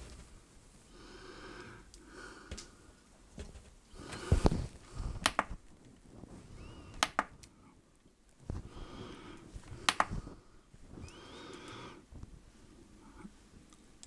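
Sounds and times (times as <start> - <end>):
sharp clicks: 5.2 - 5.6, 6.9 - 7.5, 9.8 - 10.2.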